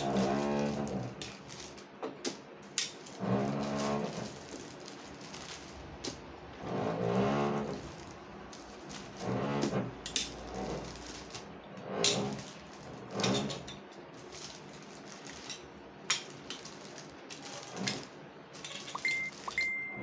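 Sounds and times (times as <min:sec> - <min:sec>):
rolling pin rolling dough: 0:00.0 - 0:05.0, 0:05.7 - 0:13.7.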